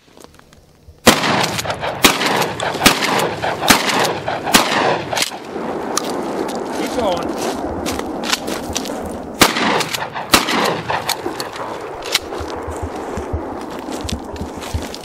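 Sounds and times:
shotgun shots with echoes: 1.0 - 6.0, 9.4 - 13.6.

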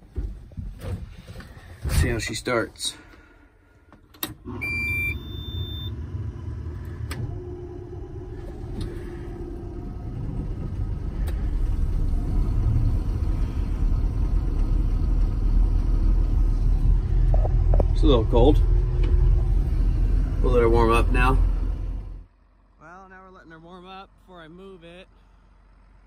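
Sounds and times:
diesel engine starting and running: 0.0 - 26.0
short electronic beeps: 4.6 - 5.9.

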